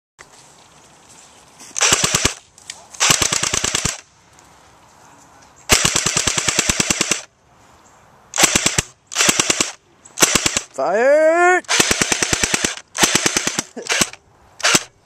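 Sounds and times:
airsoft rifle full-auto bursts: 1.8s - 2.4s, 3.0s - 4.0s, 5.7s - 7.3s, 8.4s - 10.8s, 11.6s - 15.0s.

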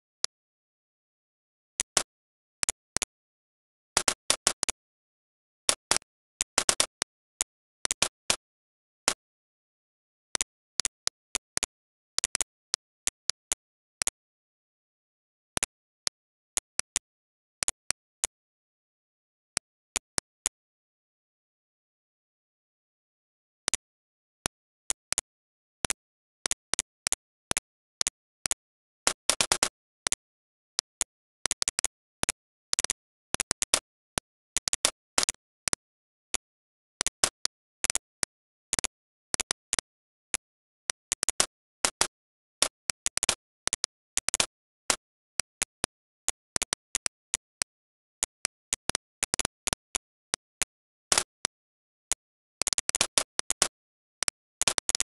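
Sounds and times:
computer mouse clicking: 52.7s - 55.0s.

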